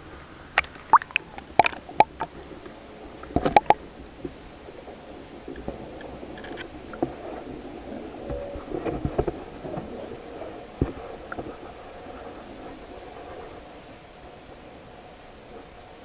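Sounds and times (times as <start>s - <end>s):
muffled underwater rumble: 0.0s - 16.0s
water slapping against camera housing: 0.6s - 2.4s, 3.2s - 3.8s
splashes: 0.6s - 2.5s, 3.1s - 3.8s.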